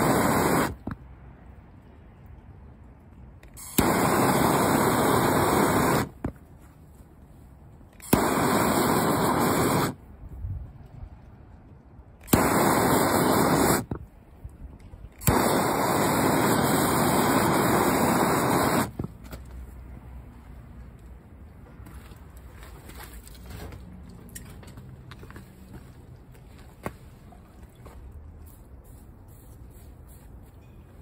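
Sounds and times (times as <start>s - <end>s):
hand-held torch blasts: 0.0s - 1.1s, 3.4s - 6.4s, 7.9s - 10.0s, 12.1s - 14.1s, 14.8s - 19.2s
torch ignition click: 3.4s - 6.2s, 8.0s - 10.0s, 12.2s - 14.0s, 15.2s - 19.0s.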